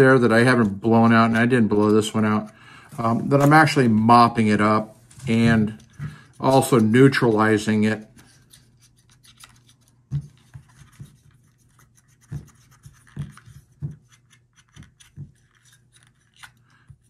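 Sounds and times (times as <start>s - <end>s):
cotton swab scratching plastic: 8.0s - 17.0s.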